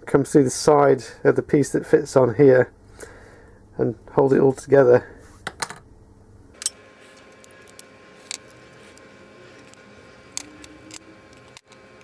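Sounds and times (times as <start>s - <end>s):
faint steady hum: 0.0s - 12.0s
acrylic parts clicking together: 6.6s - 12.0s.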